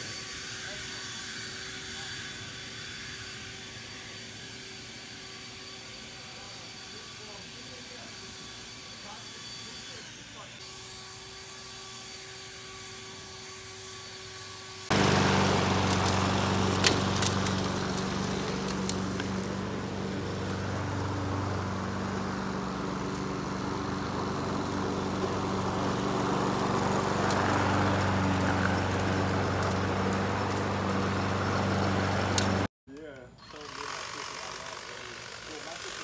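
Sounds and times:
lawn mower engine running: 0:14.9 - 0:32.7.

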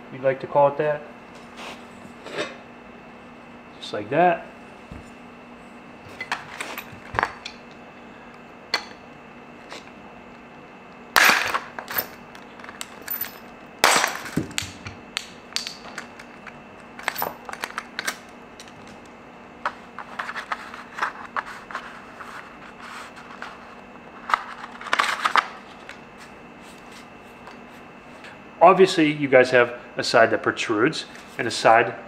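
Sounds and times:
wheel rustling and scraping: 0:06.1 - 0:07.2.

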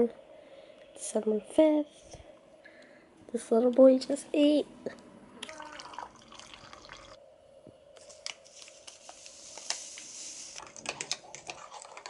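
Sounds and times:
water pouring into a mug: 0:05.6 - 0:07.2.

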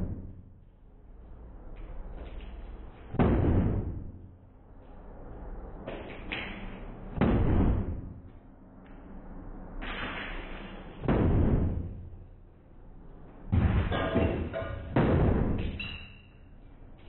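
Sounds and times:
heavy blows on tiled wall: 0:03.1 - 0:04.4, 0:07.1 - 0:08.3, 0:11.0 - 0:12.2, 0:13.5 - 0:15.8.

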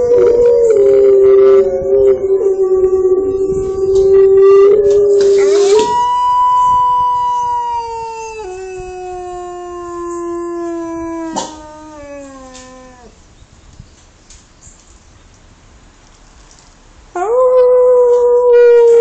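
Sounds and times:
wolf howling: 0:00.0 - 0:13.2, 0:17.2 - 0:19.0.

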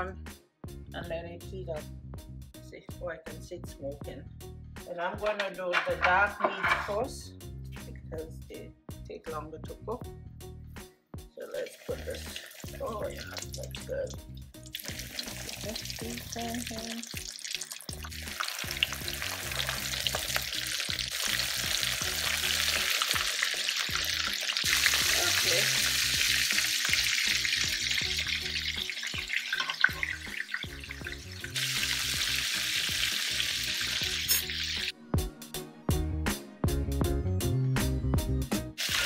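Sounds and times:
low background music: 0:00.0 - 0:39.0
chicken sizzling in hot oil: 0:11.5 - 0:34.9, 0:38.8 - 0:39.0.

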